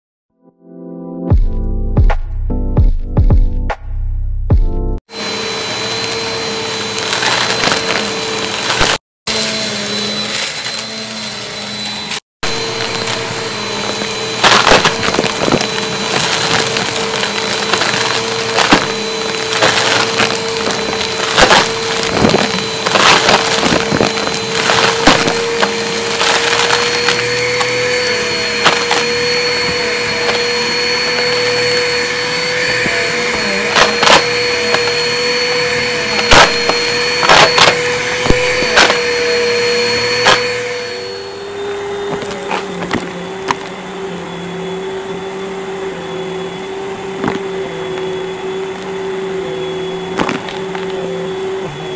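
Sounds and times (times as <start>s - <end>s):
vacuum cleaner motor whine: 5.1s - 51.9s
small objects rattling in vacuum: 5.5s - 43.8s.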